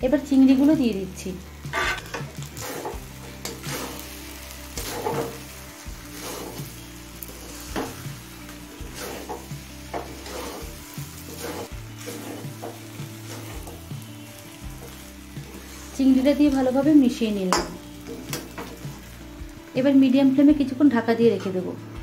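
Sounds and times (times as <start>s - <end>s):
food sizzling: 0.0s - 22.0s
spatula scraping metal pan: 1.6s - 8.0s, 8.8s - 13.9s.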